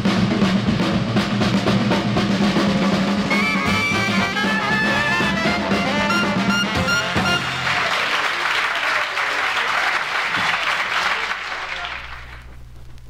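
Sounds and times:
jazz band playing: 0.0 - 8.8
audience applause: 3.3 - 12.6.

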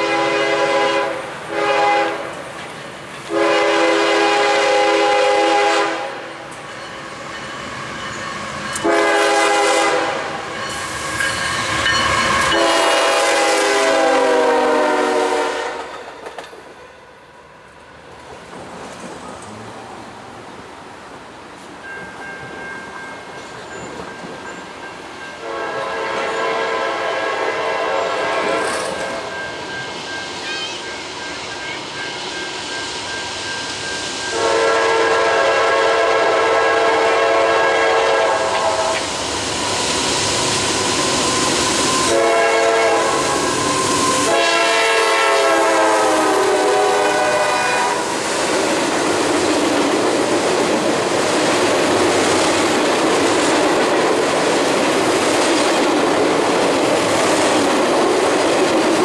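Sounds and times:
locomotive air horn blasts: 0.0 - 2.3, 3.3 - 6.3, 8.8 - 10.4, 12.5 - 15.9, 25.4 - 29.3, 34.3 - 39.1, 41.9 - 48.2.

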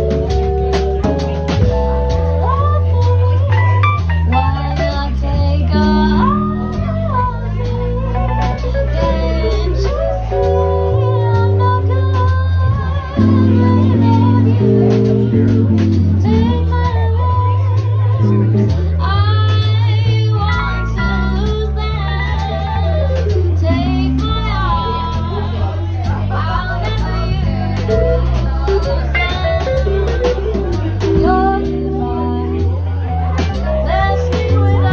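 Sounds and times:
keyboard bass and chords: 0.0 - 34.9
woman singing ballad: 2.2 - 15.3, 16.2 - 25.7, 31.0 - 34.9.

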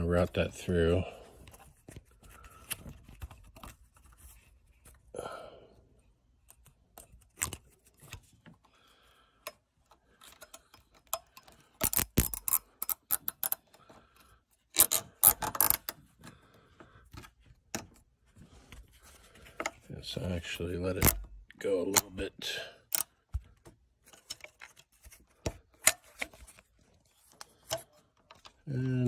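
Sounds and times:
zip tie ratchet clicks: 11.8 - 13.6, 14.8 - 15.9.

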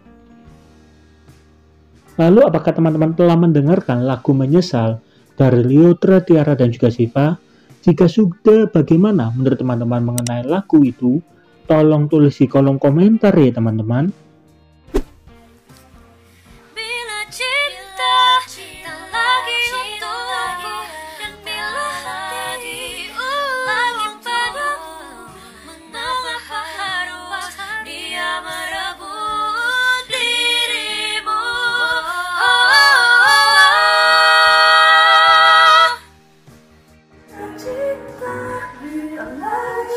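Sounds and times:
woman singing a cappella: 16.8 - 36.1, 37.3 - 39.9.

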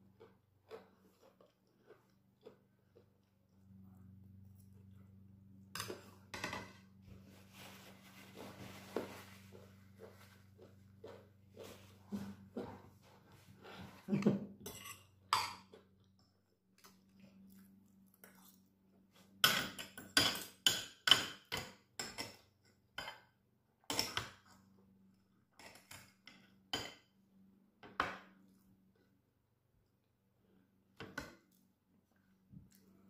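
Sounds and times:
knife and fork clinking on plate: 14.6 - 15.7.

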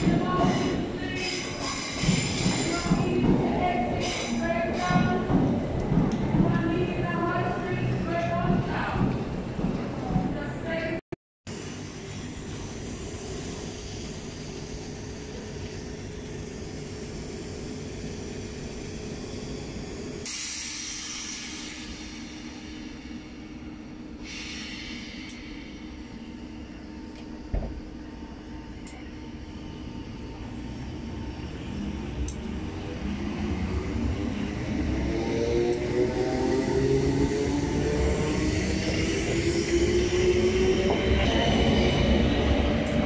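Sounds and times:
train wheels and motors rumbling: 0.0 - 43.0
hiss: 20.2 - 22.3, 24.2 - 25.8.

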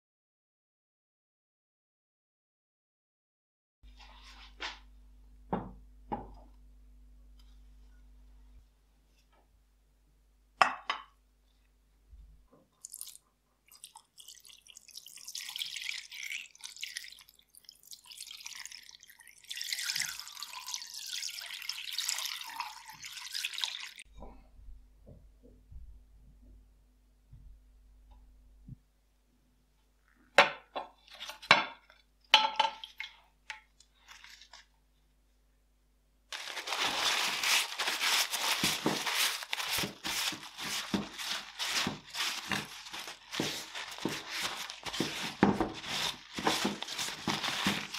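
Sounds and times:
liquid pouring and splashing: 12.8 - 24.1, 36.4 - 47.9.

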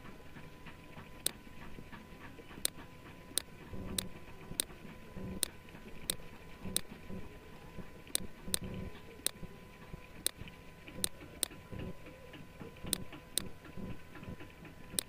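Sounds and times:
faint electrical hum: 0.0 - 15.0
computer mouse clicking: 2.5 - 2.8, 3.4 - 4.7, 8.1 - 9.4, 11.0 - 11.6, 12.8 - 14.3.

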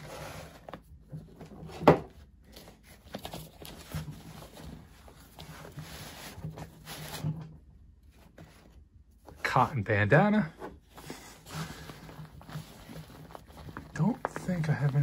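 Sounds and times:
fabric rustling and scraping: 2.4 - 9.5, 10.6 - 15.0.

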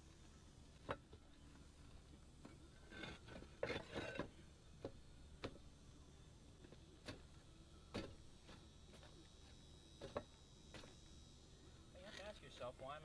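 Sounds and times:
roof tiles scraping: 2.8 - 4.3.

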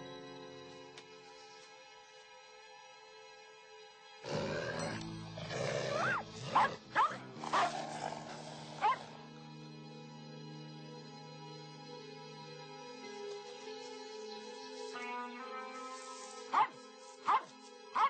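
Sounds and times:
soft film score music: 0.0 - 18.0
dog and wolf growling: 4.2 - 9.2, 16.5 - 16.7, 17.3 - 18.0
short sharp barks: 16.5 - 18.0.

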